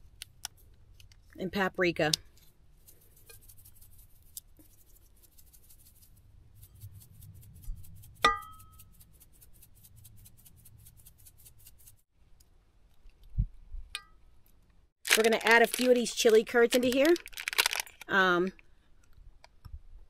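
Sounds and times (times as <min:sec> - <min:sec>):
spice shaker rattling: 0:02.8 - 0:12.0, 0:15.1 - 0:18.1.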